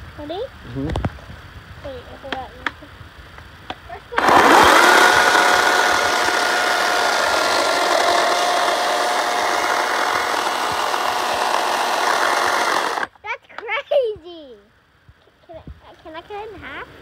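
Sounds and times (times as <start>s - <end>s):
chain cutting wood rasping: 4.2s - 13.1s
electric chainsaw whining: 4.2s - 13.1s.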